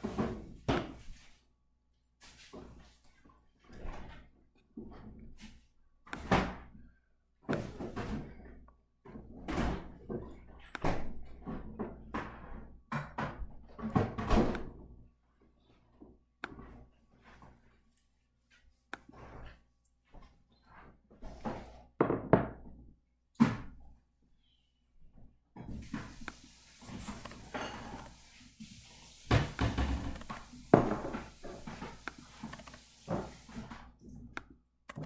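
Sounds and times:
irregular knocks and thuds: 7.5 - 15.0, 29.2 - 34.4.

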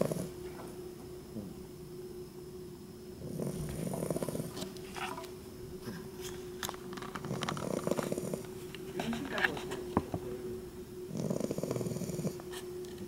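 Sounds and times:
puppy snoring: 0.0 - 0.7, 3.2 - 6.1, 7.2 - 9.8, 11.1 - 12.6
puppy breathing: 7.3 - 9.8.

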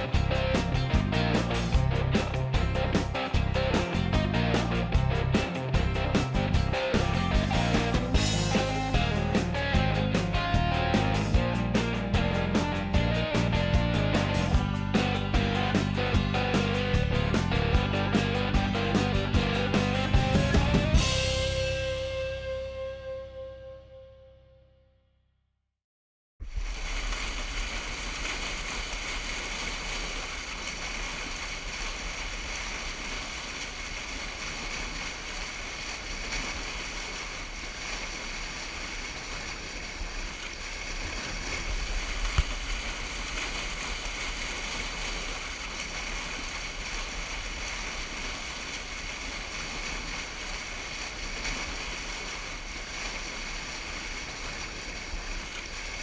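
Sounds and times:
river rushing over a dam: 26.7 - 56.0.

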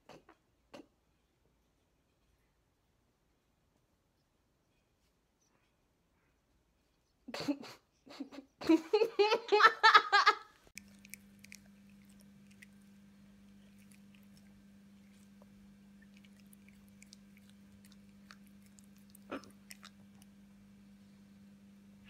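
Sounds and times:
low steady hum: 0.1 - 22.0
parrot beak clicking and nibbling: 10.7 - 20.3.

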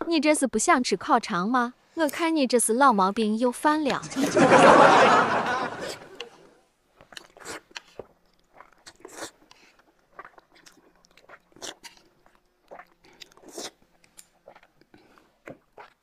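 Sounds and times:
chewing and crunching: 6.9 - 16.0.

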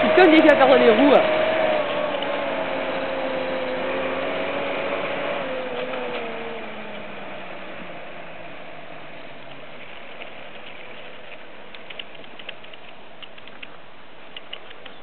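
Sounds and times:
distant tractor engine: 0.0 - 15.0
light ticks: 9.4 - 15.0.

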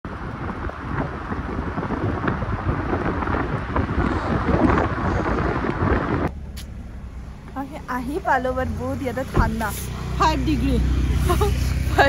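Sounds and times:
car road noise: 0.0 - 12.0
wind buffeting microphone: 0.1 - 12.0.

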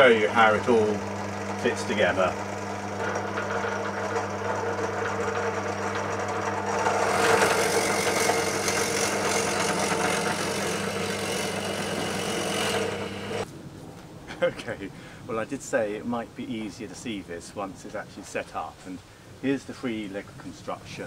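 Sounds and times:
drill bit boring wood: 0.0 - 13.4
drill motor hum: 0.0 - 13.4.

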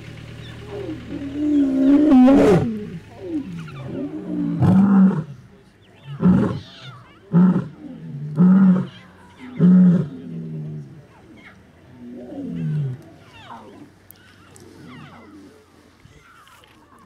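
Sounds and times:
lion roaring: 0.6 - 5.5, 6.1 - 13.9.

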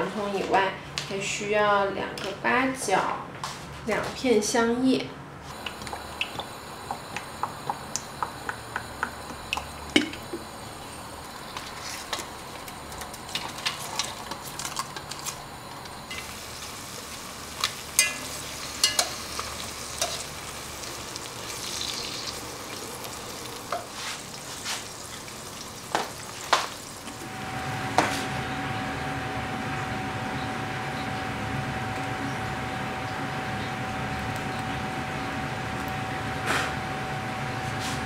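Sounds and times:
steady hum with faint tone: 0.0 - 38.0
aromatics sizzling in hot oil: 5.5 - 36.5
sharp taps and pops: 5.6 - 10.4.

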